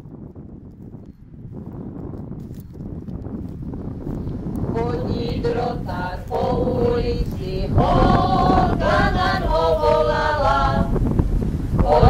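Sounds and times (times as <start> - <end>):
wind rumbling on microphone: 0.0 - 12.0
voices singing a folk song: 4.6 - 12.0.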